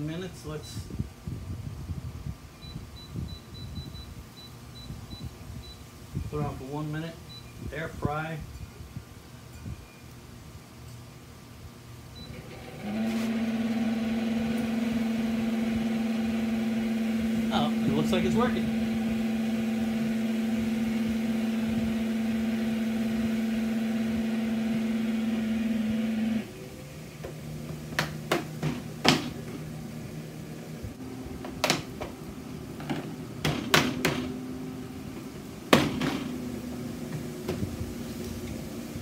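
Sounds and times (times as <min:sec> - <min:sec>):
air fryer fan humming: 0:12.2 - 0:39.0.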